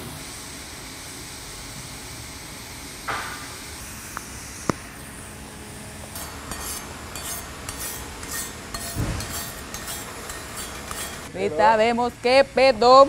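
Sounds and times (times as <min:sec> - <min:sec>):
wire brush scrubbing metal: 0:06.2 - 0:11.3.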